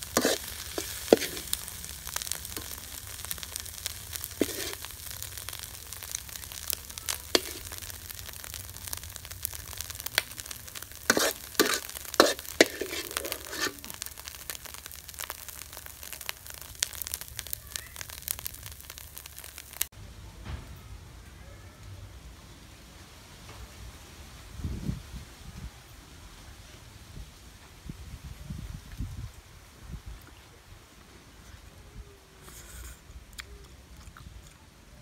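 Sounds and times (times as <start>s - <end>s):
metal spatula scraping a pan: 0.0s - 3.4s, 4.1s - 5.6s, 7.3s - 7.8s, 11.0s - 14.1s
food sizzling in a wok: 0.0s - 19.9s.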